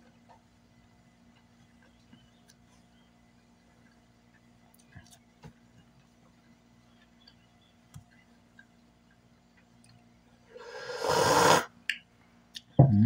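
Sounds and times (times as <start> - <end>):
person slurping from a cup: 10.6 - 11.7.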